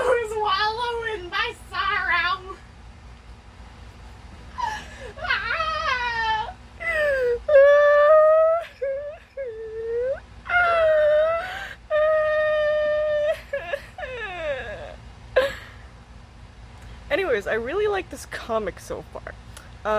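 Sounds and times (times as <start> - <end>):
person crying and wailing: 4.6 - 15.8.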